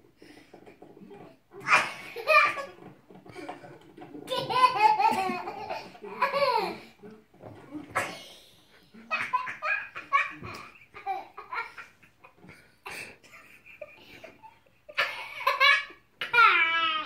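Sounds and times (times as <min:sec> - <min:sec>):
toddler laughing: 0:01.6 - 0:02.9, 0:04.2 - 0:06.9, 0:09.0 - 0:17.0.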